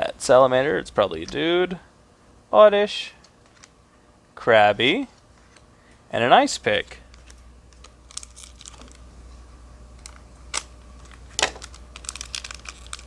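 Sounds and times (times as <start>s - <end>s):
foil wrapper crinkling: 7.1s - 9.0s, 10.0s - 13.0s.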